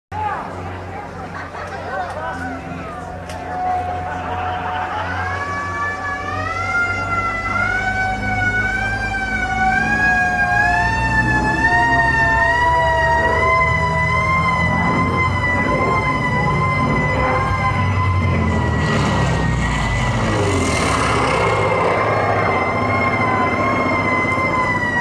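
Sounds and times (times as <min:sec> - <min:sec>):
air-raid siren wailing: 0:02.3 - 0:25.0
lower siren tone sliding down: 0:04.8 - 0:25.0.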